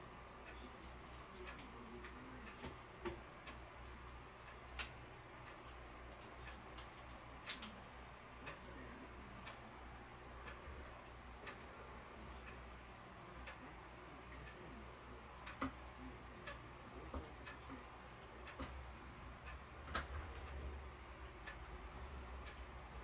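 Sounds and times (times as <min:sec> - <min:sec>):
faint ticking: 0:00.0 - 0:23.0
sharp irregular clicks: 0:01.2 - 0:08.7, 0:14.3 - 0:23.0.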